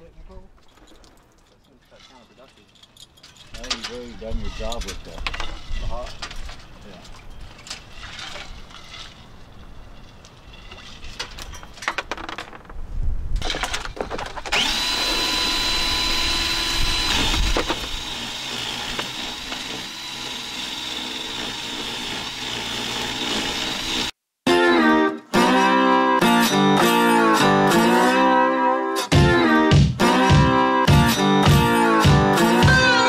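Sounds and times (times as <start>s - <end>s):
cordless drill whining: 14.5s - 24.1s.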